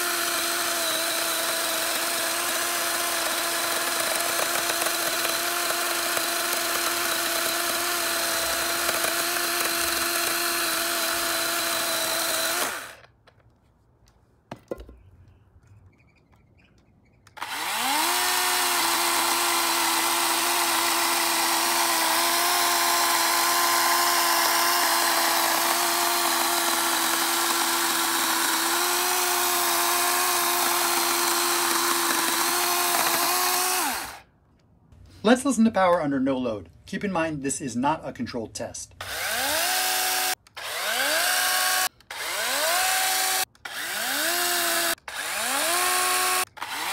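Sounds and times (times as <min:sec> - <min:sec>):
battery chainsaw cutting log: 0:00.0 - 0:13.2, 0:17.3 - 0:34.3, 0:39.0 - 0:46.9.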